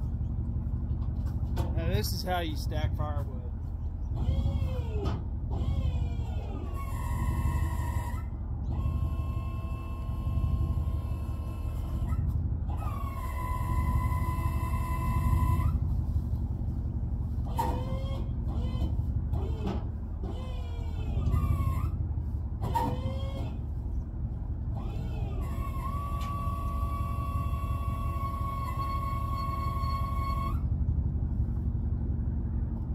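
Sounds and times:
truck engine idling: 0:00.0 - 0:32.9
hydraulic pump whining: 0:04.1 - 0:15.9, 0:17.4 - 0:23.8, 0:24.6 - 0:30.7
short gliding squeals: 0:05.6 - 0:15.9, 0:20.3 - 0:22.0, 0:24.8 - 0:30.7.

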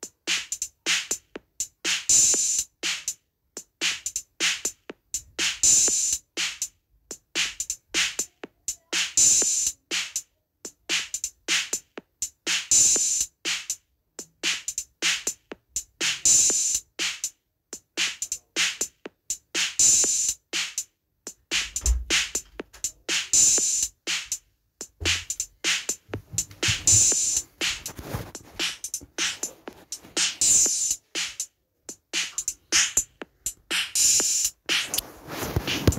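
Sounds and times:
rhythmic dance drum beat: 0:00.0 - 0:35.9.

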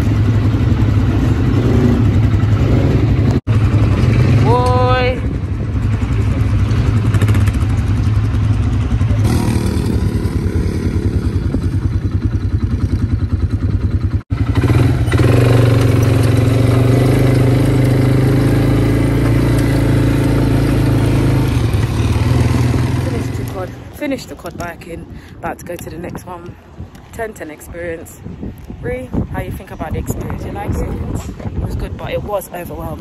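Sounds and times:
quad bike engine running: 0:00.0 - 0:24.0.

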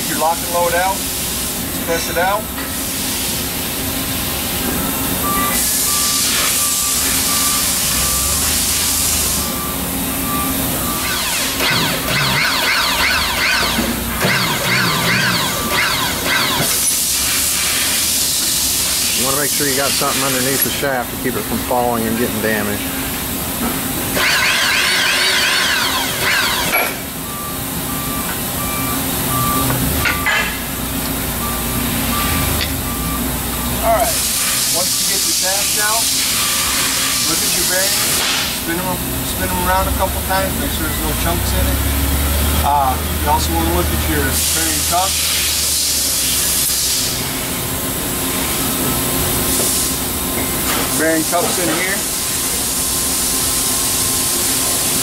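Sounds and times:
shop press running with hiss: 0:00.0 - 0:55.0
low machine hum: 0:03.7 - 0:34.0
short electronic beeps: 0:05.2 - 0:08.5, 0:09.4 - 0:17.1, 0:24.2 - 0:30.5, 0:31.4 - 0:33.8.

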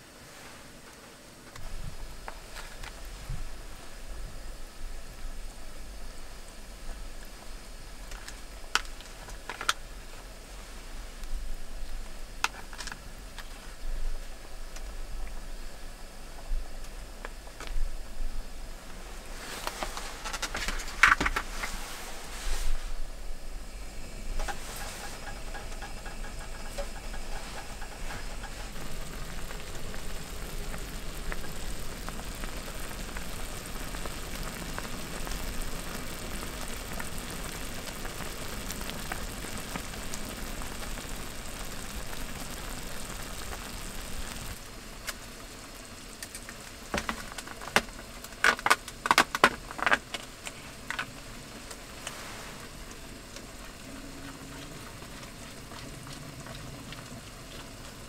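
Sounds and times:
water boiling and bubbling: 0:00.0 - 0:58.0
sharp clicks and crackles: 0:06.8 - 0:09.8, 0:11.2 - 0:13.6, 0:19.6 - 0:21.8, 0:24.4 - 0:45.4, 0:46.0 - 0:58.0.

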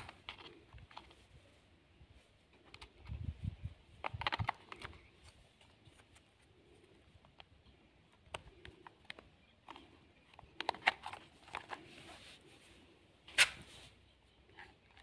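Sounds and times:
plastic battery cover clicking: 0:04.0 - 0:05.1, 0:08.2 - 0:11.8.

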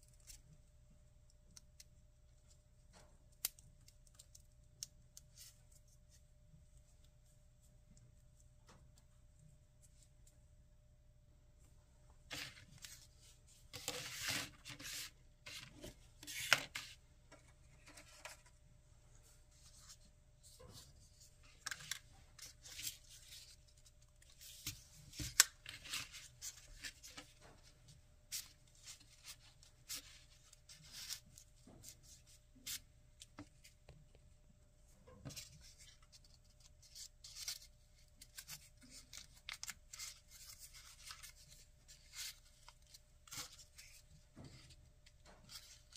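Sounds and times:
paper rustling and scraping: 0:12.3 - 0:18.6.

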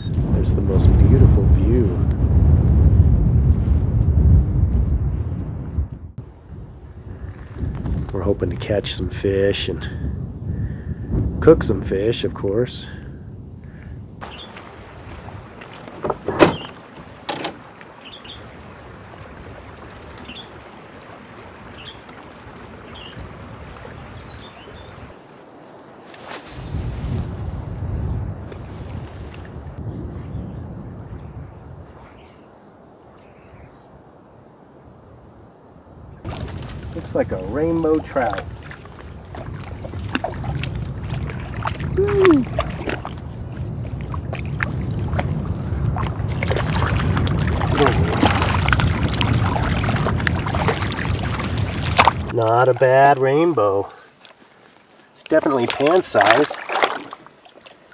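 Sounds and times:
small splashes: 0:14.2 - 0:25.1, 0:36.3 - 0:57.9
man exclaiming: 0:42.0 - 0:42.5.

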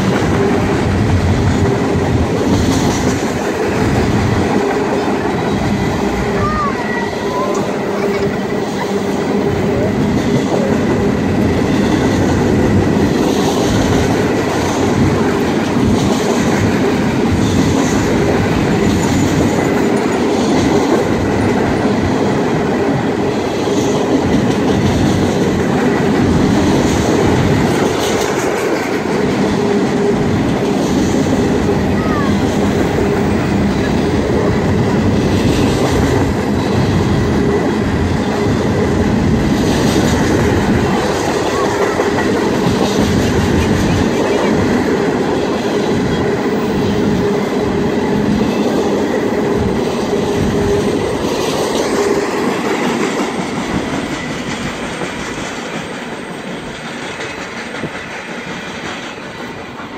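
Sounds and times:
wheels clacking on rail joints: 0:00.0 - 0:06.5, 0:07.4 - 0:31.7, 0:49.6 - 0:59.9
train wheels rumbling on rails: 0:00.0 - 0:59.9.

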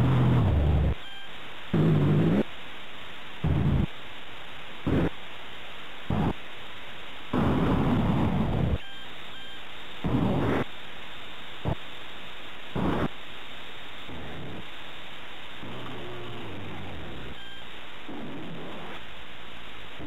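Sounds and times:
tape hiss: 0:00.0 - 0:20.0
faint beeps: 0:00.9 - 0:01.4, 0:08.8 - 0:10.0, 0:17.1 - 0:17.8.

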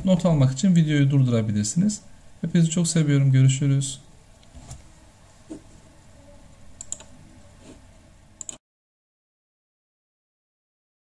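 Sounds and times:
room hiss: 0:00.0 - 0:08.6
computer mouse and keys clicking: 0:06.8 - 0:07.8, 0:08.4 - 0:08.6.

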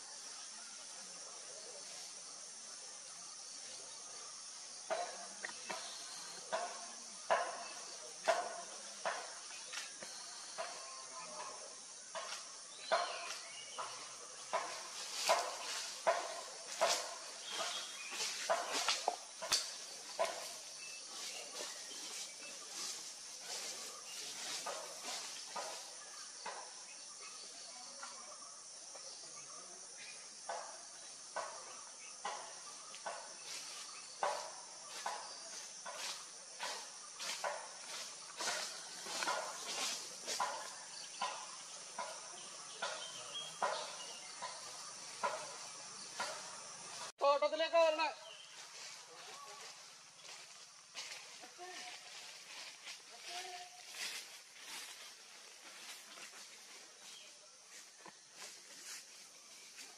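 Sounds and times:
forest insects droning: 0:00.0 - 0:59.9
footsteps crunching on dry leaves: 0:13.1 - 0:26.0, 0:34.8 - 0:41.4, 0:48.3 - 0:59.9.

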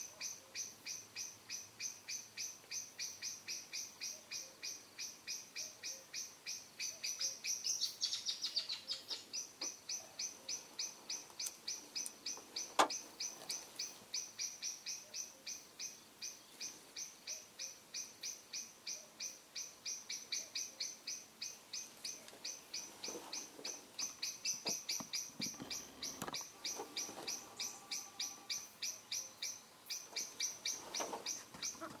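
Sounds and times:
small animal high-pitched chirp: 0:00.0 - 0:12.4.

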